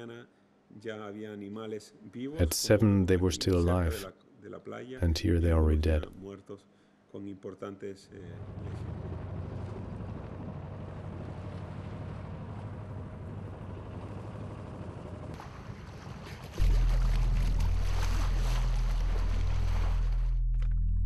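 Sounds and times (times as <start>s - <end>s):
boat engine rumble: 8.3s - 21.0s
deep droning background music: 16.6s - 21.0s.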